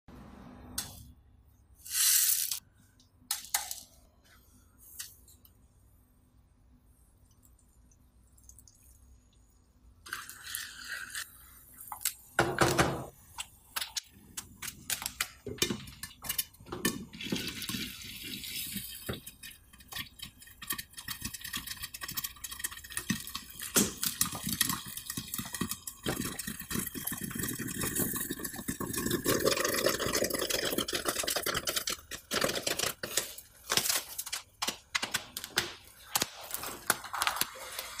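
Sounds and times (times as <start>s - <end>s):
popcorn popping: 12.0s - 17.8s, 18.7s - 38.0s.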